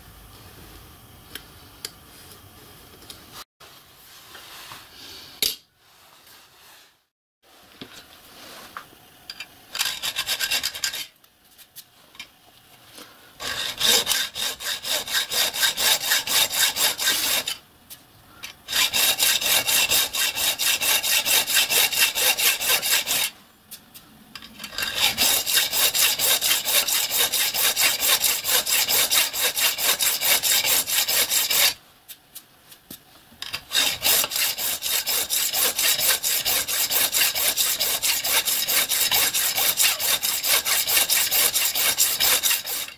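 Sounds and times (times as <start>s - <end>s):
hacksaw cutting metal: 9.8s - 11.1s, 13.4s - 17.6s, 18.7s - 23.4s, 24.7s - 31.8s, 33.5s - 42.9s.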